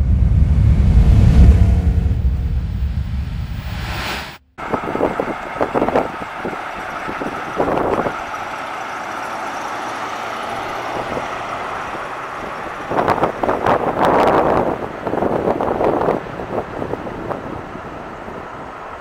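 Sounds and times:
whooshing intro sound: 0:00.0 - 0:04.9
car engine driving by: 0:00.0 - 0:19.0.

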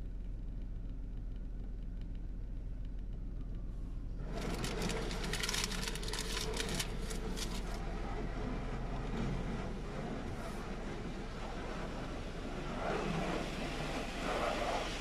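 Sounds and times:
car wash low rumble: 0:00.0 - 0:15.0
water and soap pelting car: 0:04.2 - 0:15.0.

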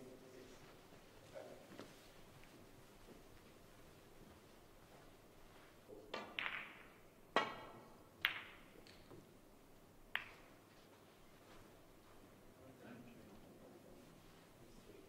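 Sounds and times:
snooker balls clicking together: 0:06.0 - 0:09.3, 0:10.1 - 0:10.6
cue tip hitting ball: 0:06.2 - 0:09.2.

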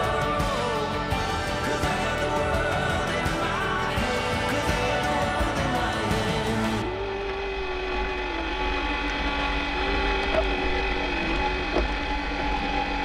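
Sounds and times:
windlass motor whine: 0:06.6 - 0:13.0.

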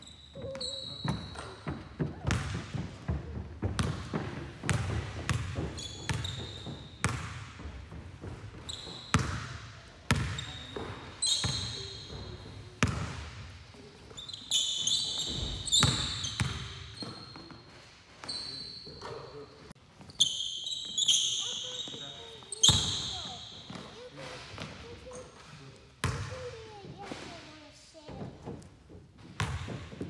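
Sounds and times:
sneaker squeaks: 0:00.0 - 0:07.7, 0:08.3 - 0:26.6
basketball bouncing on wood floor: 0:00.4 - 0:13.3, 0:15.2 - 0:17.2, 0:28.2 - 0:30.0.

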